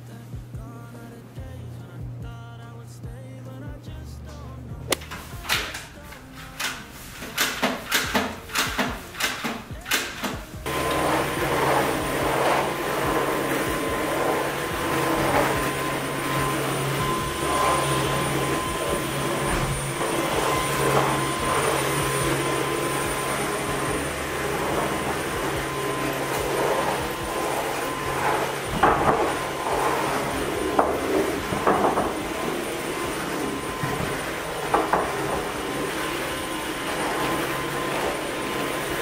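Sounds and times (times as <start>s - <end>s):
vacuum cleaner motor whine: 5.0s - 39.0s.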